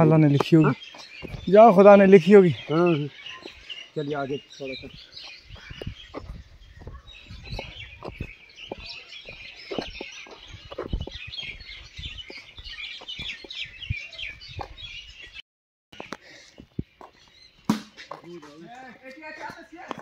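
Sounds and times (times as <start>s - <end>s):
footsteps and handling thumps: 0.0s - 1.6s, 5.2s - 13.7s, 16.0s - 20.0s
birds chirping: 0.0s - 20.0s.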